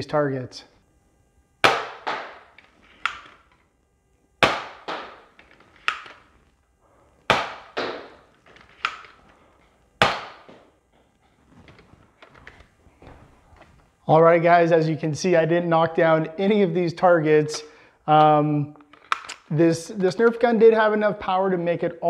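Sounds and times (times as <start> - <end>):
toy dart blaster shots: 1.6 - 3.4, 4.4 - 6.2, 7.3 - 8.2, 10.0 - 10.6.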